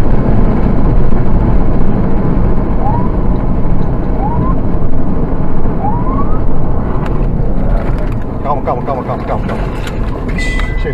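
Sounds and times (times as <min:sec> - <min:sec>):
car engine and road noise: 0:00.0 - 0:10.9
siren whoops: 0:02.8 - 0:03.2, 0:04.1 - 0:04.6, 0:05.8 - 0:06.6.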